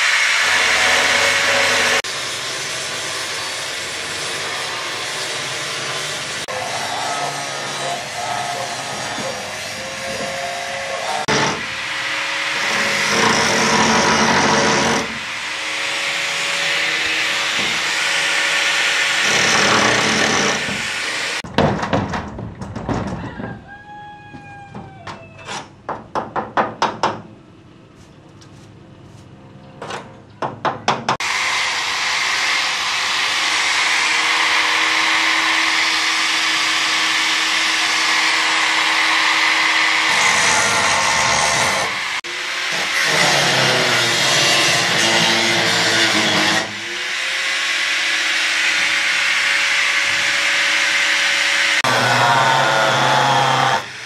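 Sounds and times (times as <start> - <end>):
angle grinder cutting steel: 0.0 - 21.4, 31.2 - 54.0
metal knocks and clanks: 21.4 - 23.6.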